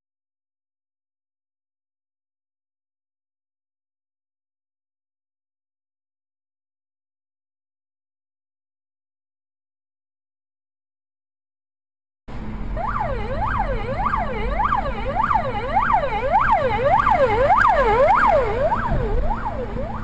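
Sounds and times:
road noise rumble: 12.3s - 20.0s
siren yelping: 12.8s - 20.0s.

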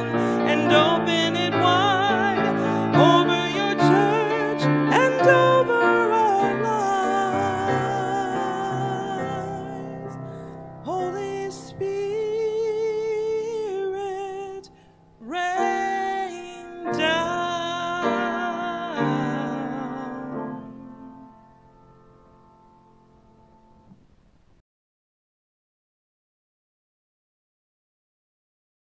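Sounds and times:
woman singing a hymn: 0.0s - 21.6s
piano chords: 0.0s - 24.2s.

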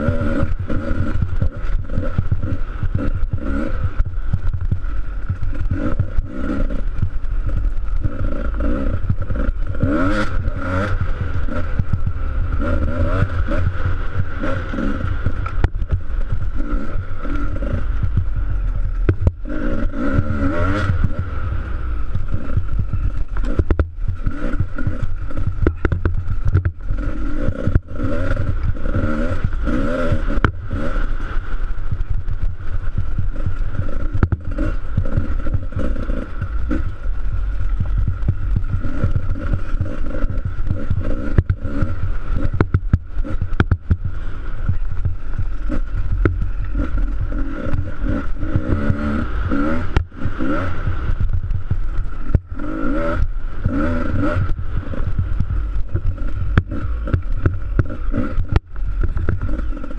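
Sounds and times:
dirt bike engine revving: 0.0s - 59.9s
knocks and rattles: 22.1s - 26.9s.

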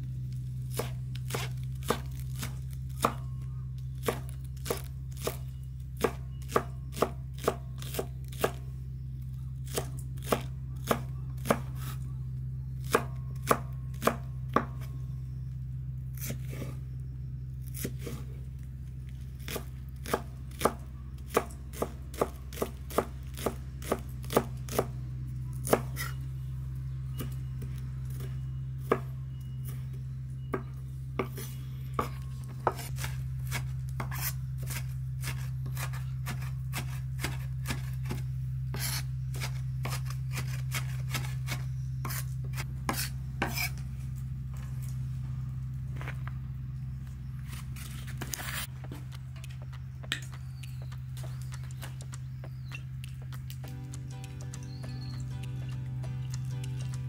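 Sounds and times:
low hum: 0.0s - 57.0s
knife chopping on wooden board: 0.7s - 3.3s, 4.0s - 5.4s, 6.0s - 8.6s, 9.7s - 12.0s, 12.8s - 14.9s, 19.4s - 24.9s, 25.6s - 26.2s, 30.5s - 43.8s.

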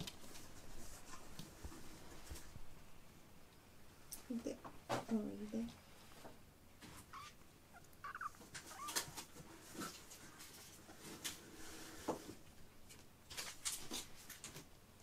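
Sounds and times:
kittens mewing: 7.0s - 10.1s
paws tapping and scratching carpet: 7.9s - 11.5s.

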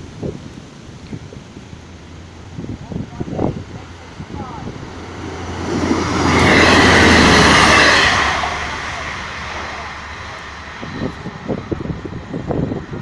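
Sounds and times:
wind buffeting microphone: 0.0s - 13.0s
train passing at speed: 1.5s - 13.0s.

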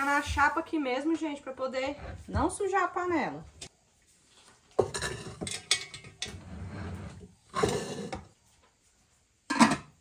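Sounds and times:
metal pot clattering on hotplate: 4.8s - 6.3s, 9.5s - 10.0s
metal lid clanking: 9.5s - 10.0s.

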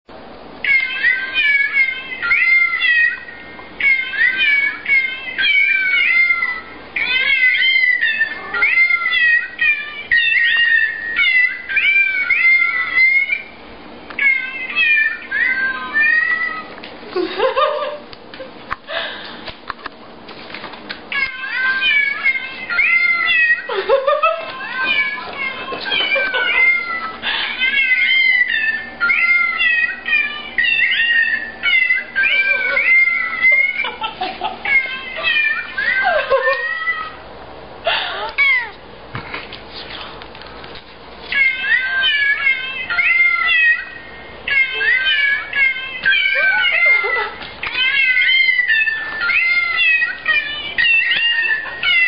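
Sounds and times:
drawn-out meow: 47.8s - 52.0s.

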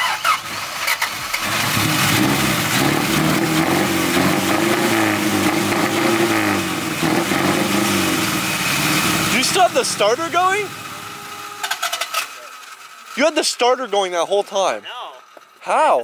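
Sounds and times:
car engine running: 0.0s - 16.0s
starter motor grinding: 8.7s - 15.7s.

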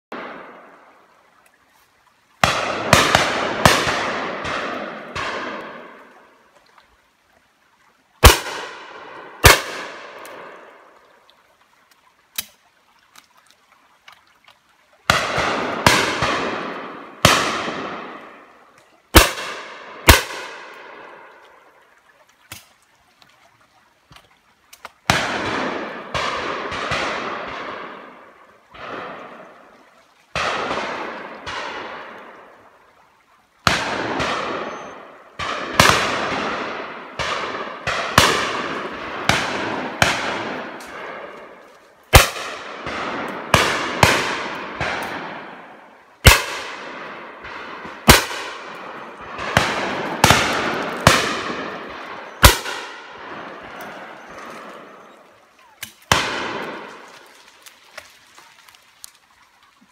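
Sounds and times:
shotguns firing with echo: 2.4s - 6.1s, 8.2s - 10.8s, 15.1s - 18.5s, 19.1s - 21.3s, 25.1s - 29.6s, 30.4s - 32.5s, 33.6s - 57.2s.

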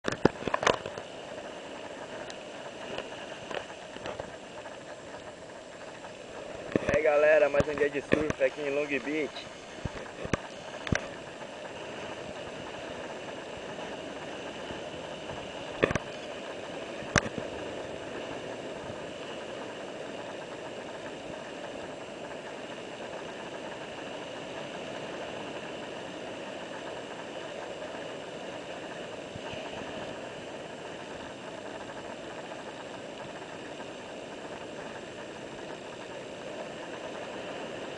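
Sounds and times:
surf breaking over rocks: 0.0s - 37.9s
sharp clicks: 6.7s - 9.2s.

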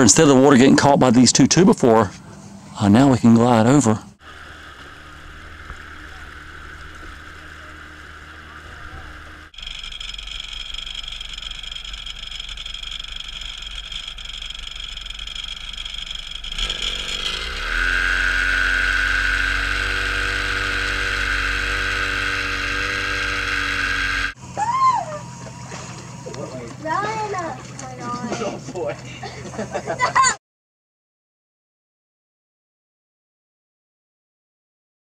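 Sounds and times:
outboard motor running: 2.2s - 30.4s.

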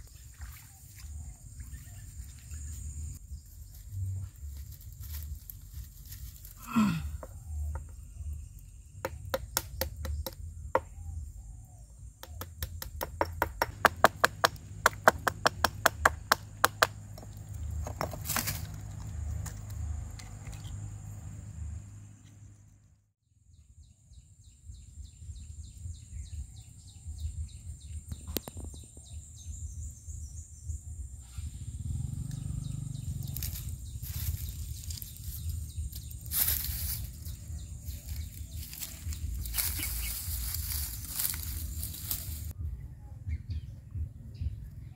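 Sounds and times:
sharp knocks on wood: 9.0s - 11.0s, 12.2s - 18.2s.

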